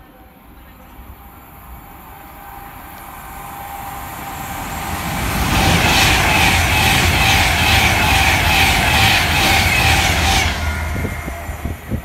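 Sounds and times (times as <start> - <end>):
thin steady whine: 0.0 - 8.5
train wheel and air rush: 0.7 - 12.0.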